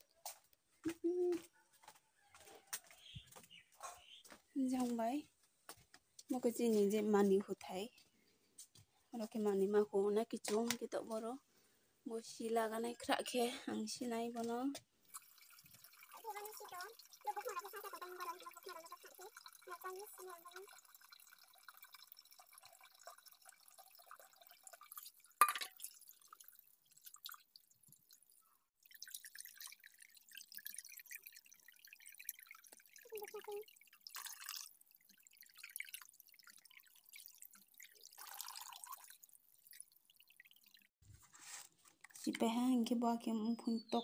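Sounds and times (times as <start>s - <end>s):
tap water splashing into bowl: 14.4s - 28.2s, 28.8s - 40.7s.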